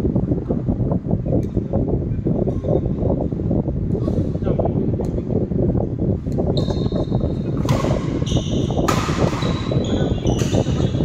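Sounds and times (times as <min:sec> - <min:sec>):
steady low rumble: 0:00.0 - 0:11.0
badminton racket hitting shuttlecock: 0:08.8 - 0:09.8.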